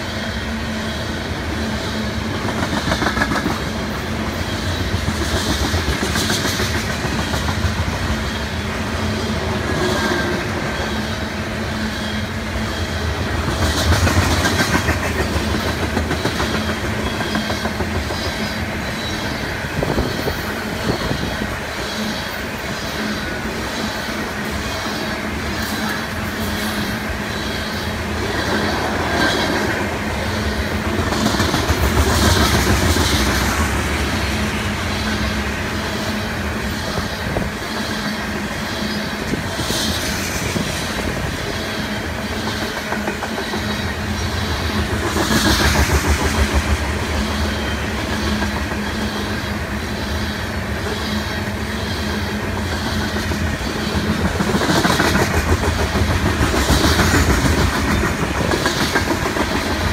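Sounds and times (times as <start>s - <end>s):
freight train wheels rumbling: 0.0s - 59.9s
wheels clacking over rail joints: 2.3s - 8.3s, 13.0s - 21.4s, 28.2s - 38.6s, 51.9s - 59.9s.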